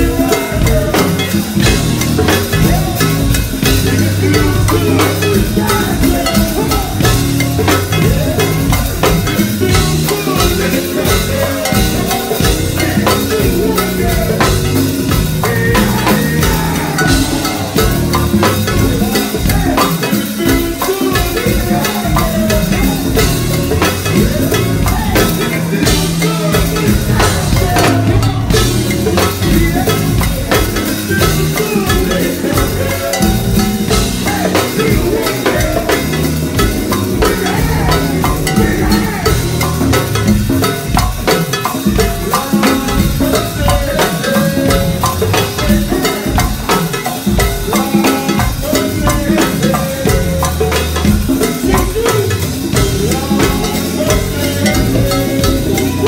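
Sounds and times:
bass notes: 0.0s - 56.0s
drum kit and hand percussion: 0.0s - 56.0s
live band playing: 0.0s - 56.0s.

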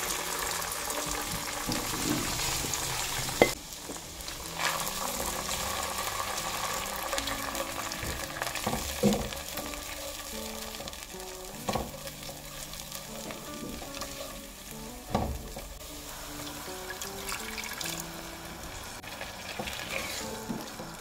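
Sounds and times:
sauce sizzling in a pan: 0.0s - 21.0s
spatula scraping a pan: 19.5s - 20.6s.

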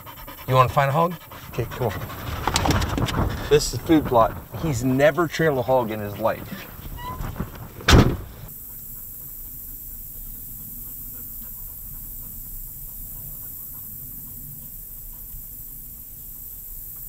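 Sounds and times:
loud thud: 7.0s - 8.5s.

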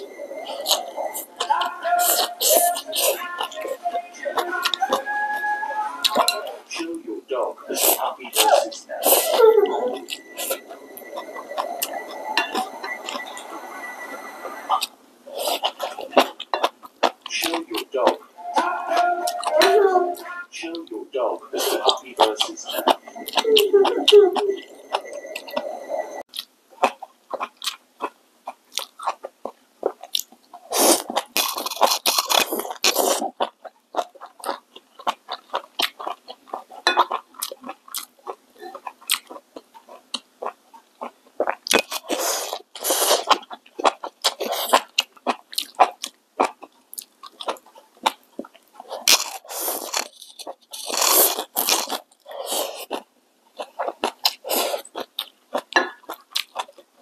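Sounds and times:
wet chewing: 0.0s - 7.0s, 14.7s - 25.6s, 26.2s - 57.0s.

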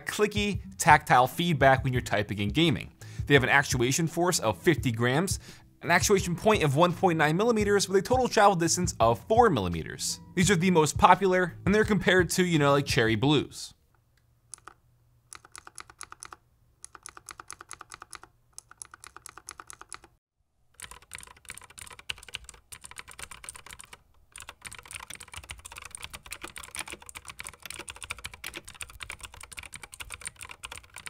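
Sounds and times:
fast typing on mechanical keyboard: 14.6s - 20.2s, 20.8s - 31.0s.

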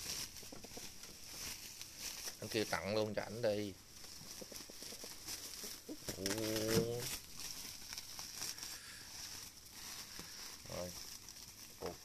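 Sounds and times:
plastic bag crinkling: 0.0s - 12.0s
low voice: 6.1s - 7.1s.

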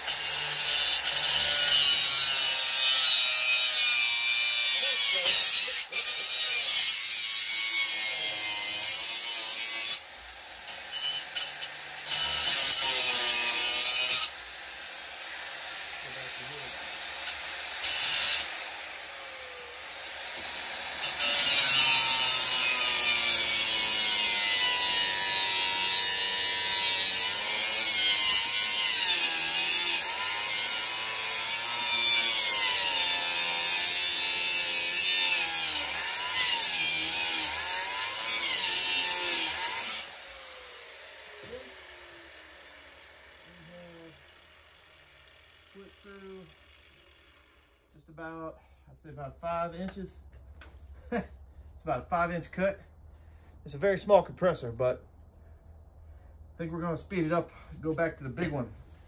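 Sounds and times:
angle grinder cutting steel: 0.0s - 47.8s.

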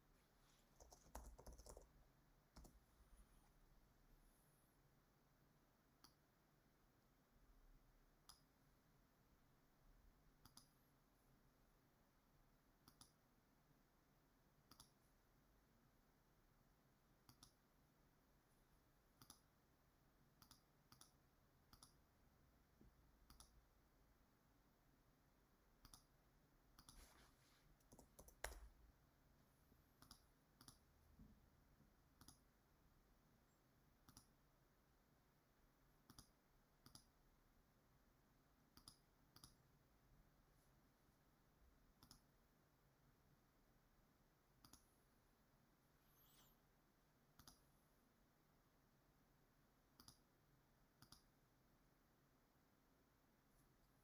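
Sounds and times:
computer mouse clicks: 0.8s - 1.9s, 2.5s - 2.8s, 6.0s - 6.2s, 8.2s - 8.5s, 10.4s - 10.8s, 12.8s - 13.2s, 14.7s - 15.0s, 17.2s - 17.6s, 19.2s - 19.5s, 20.4s - 22.0s, 23.3s - 23.6s, 25.8s - 26.1s, 26.8s - 27.1s, 27.8s - 28.8s, 30.0s - 30.9s, 32.2s - 32.5s, 34.0s - 34.4s, 36.0s - 37.2s, 38.7s - 39.6s, 42.0s - 42.3s, 44.6s - 44.9s, 47.4s - 47.7s, 50.0s - 50.3s, 51.0s - 51.4s.

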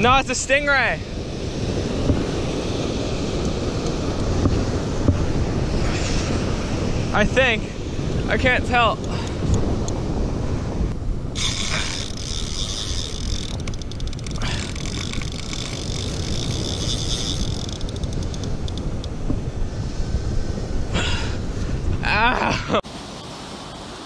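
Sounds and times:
wind rumble on microphone: 0.0s - 22.8s
fishing reel gears whirring: 11.3s - 19.2s
rapid reel clicking: 11.4s - 19.1s.

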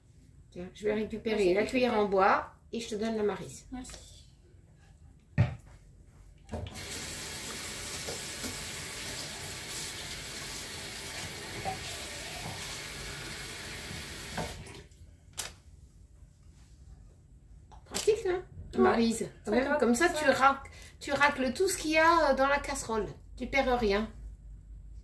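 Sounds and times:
tap running into sink: 6.5s - 14.8s.

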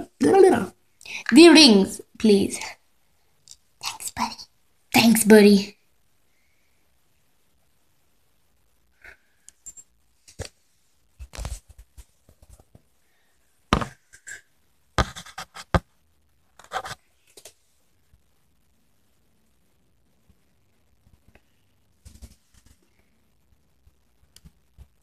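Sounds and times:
handling rustles and scrapes: 10.2s - 12.9s, 16.6s - 17.7s.

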